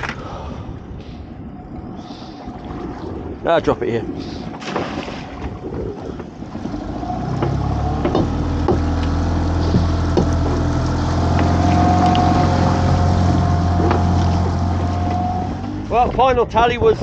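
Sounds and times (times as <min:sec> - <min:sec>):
small boat engine: 0:04.4 - 0:16.2
sharp knocks: 0:07.3 - 0:10.7, 0:13.8 - 0:14.6.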